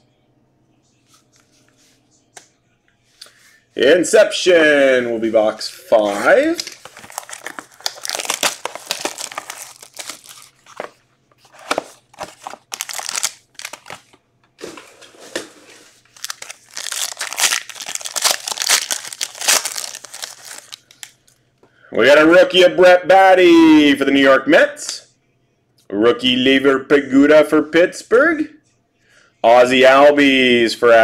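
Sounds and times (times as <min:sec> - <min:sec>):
plastic wrap crinkling and tearing: 0:06.2 - 0:21.3
foil pack ripping open: 0:06.4 - 0:10.8, 0:11.6 - 0:14.1, 0:16.0 - 0:21.2.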